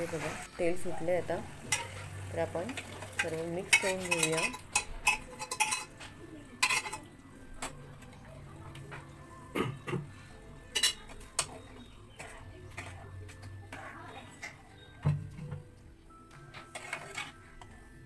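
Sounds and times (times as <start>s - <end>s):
metal spoon scraping steel pan: 1.7s - 2.1s, 3.2s - 6.0s, 6.6s - 7.1s, 10.7s - 13.1s, 16.4s - 17.8s.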